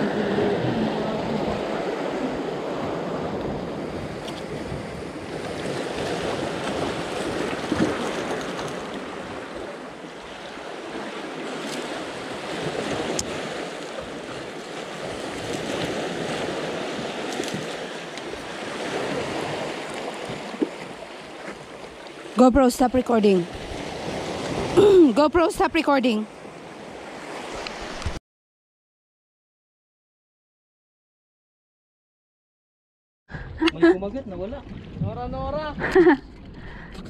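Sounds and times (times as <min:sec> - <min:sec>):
waves breaking against rocks: 0:00.0 - 0:28.2.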